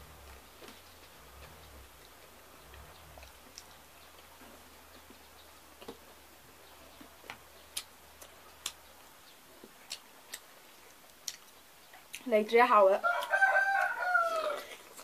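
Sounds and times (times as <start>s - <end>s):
chewing smacks: 0.0s - 6.2s, 6.9s - 8.9s, 9.6s - 12.3s.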